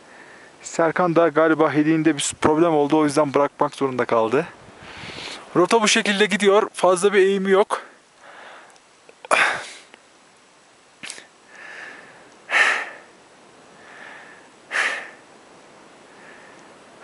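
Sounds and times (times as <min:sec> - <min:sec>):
person breathing hard: 0:08.2 - 0:08.8, 0:11.0 - 0:13.2, 0:13.8 - 0:15.3, 0:16.0 - 0:16.7.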